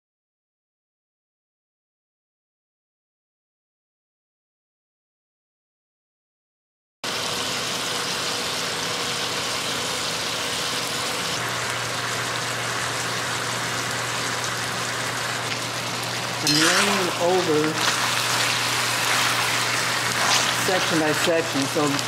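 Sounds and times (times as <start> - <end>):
meat sizzling in a skillet: 7.1 - 22.0.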